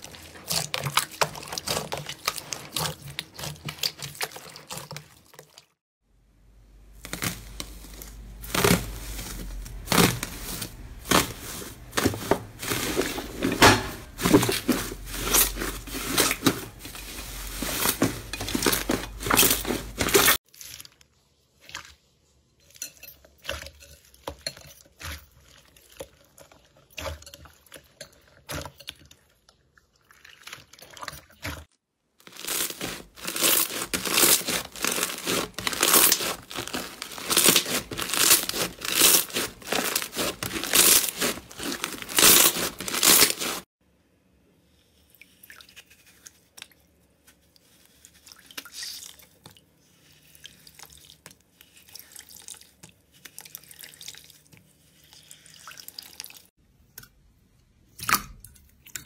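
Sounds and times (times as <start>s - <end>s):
hands working slime: 0.0s - 5.8s, 6.6s - 43.7s, 44.7s - 59.0s
bead-filled slime crackling: 6.8s - 13.4s, 32.2s - 43.7s
aluminium foil crinkling: 6.9s - 21.3s, 32.2s - 43.7s.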